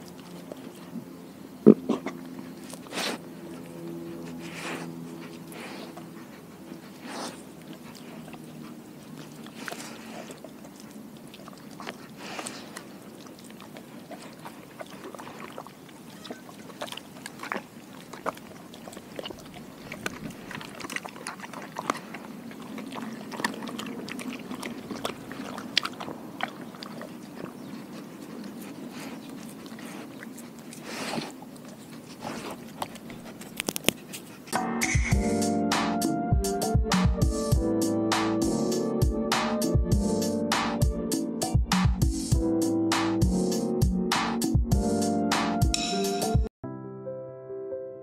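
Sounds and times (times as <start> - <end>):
dog lapping water: 0.0 - 34.5
dog licking and chewing: 0.0 - 34.6.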